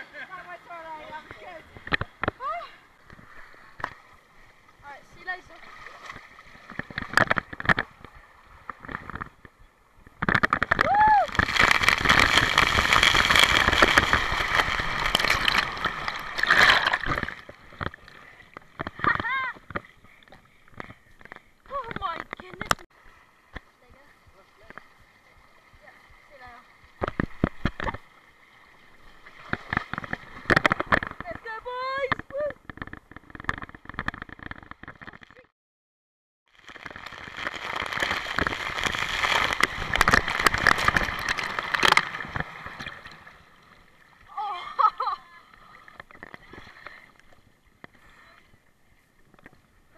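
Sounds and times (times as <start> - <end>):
water rushing and splashing: 0.0 - 35.3, 36.6 - 49.9
water splash: 5.2 - 9.3, 10.0 - 19.7, 36.6 - 47.1.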